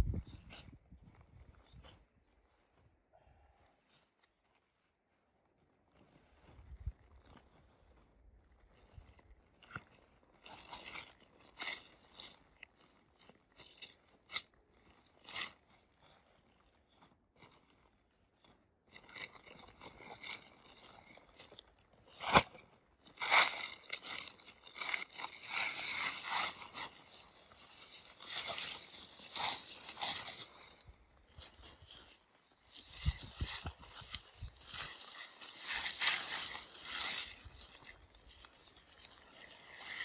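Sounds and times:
tent fabric rustling: 0.2s - 40.0s.

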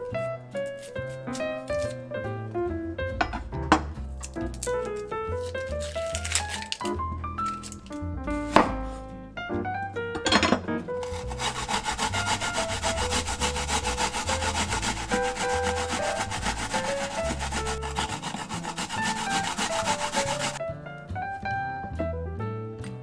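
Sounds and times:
quiet background music: 0.0s - 23.0s
vegetable grating rasps: 11.0s - 20.6s.

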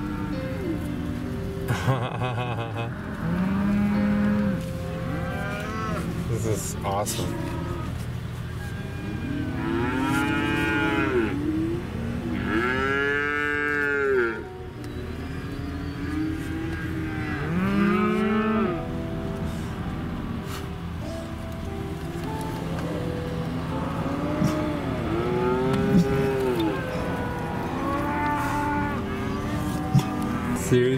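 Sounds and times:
vehicle hum: 0.0s - 30.9s
cattle mooing: 2.4s - 14.6s, 15.2s - 18.9s, 22.0s - 30.9s.

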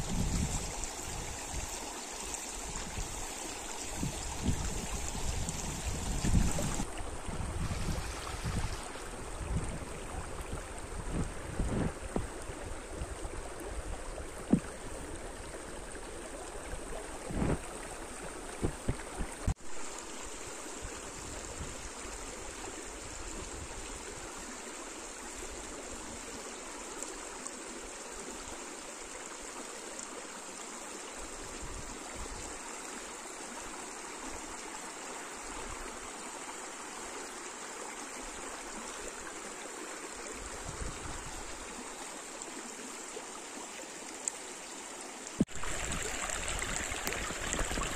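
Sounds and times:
stream flowing over rocks: 0.0s - 47.9s.

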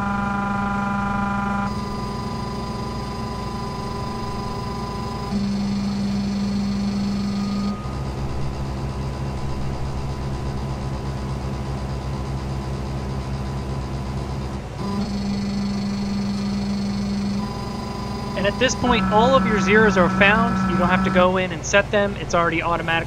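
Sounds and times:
stepper motors whining: 0.0s - 11.1s, 13.6s - 23.0s.

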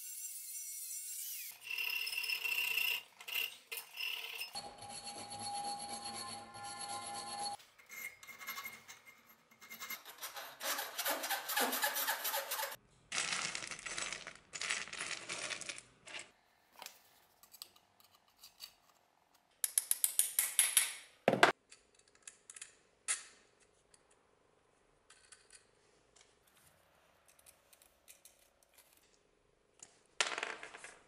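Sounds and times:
file rasping on metal: 9.7s - 12.8s.

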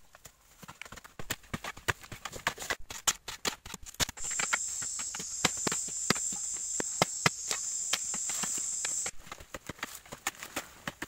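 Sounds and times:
hand tools striking hard earth: 0.9s - 11.0s
high insect drone: 4.2s - 9.2s.

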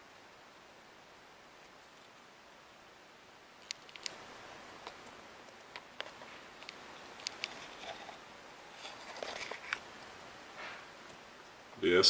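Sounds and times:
small sharp clicks and taps: 3.6s - 4.2s, 4.8s - 7.6s.

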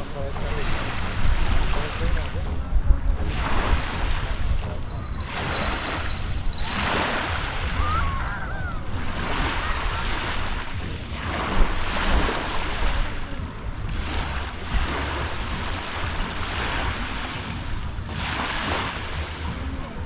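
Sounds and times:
wind rumbling on microphone: 0.0s - 20.0s
waves washing onto pebbles: 3.3s - 8.0s, 13.9s - 19.7s.

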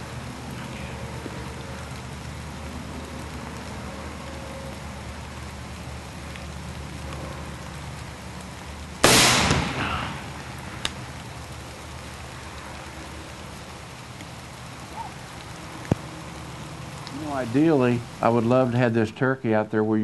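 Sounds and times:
rain hissing: 0.0s - 20.0s
shotgun blast: 9.0s - 10.4s.

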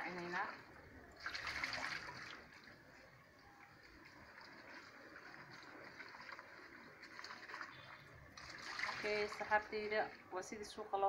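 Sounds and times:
water spilling into steel sink: 4.3s - 9.6s.

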